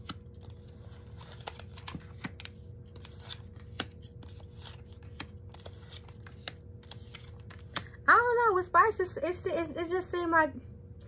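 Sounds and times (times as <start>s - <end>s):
cards clicking and flicking: 0.0s - 8.0s.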